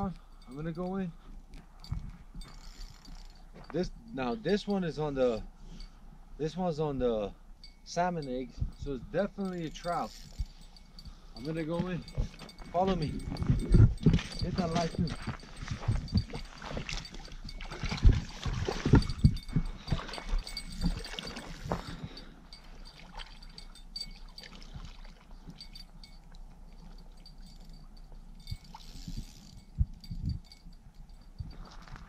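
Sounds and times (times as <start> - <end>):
water sloshing around waders: 9.4 - 29.7.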